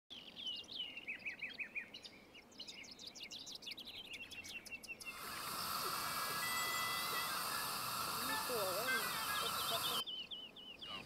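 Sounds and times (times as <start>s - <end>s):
bird singing whistled notes: 0.1s - 11.0s
gas stove burner hissing: 5.1s - 10.0s.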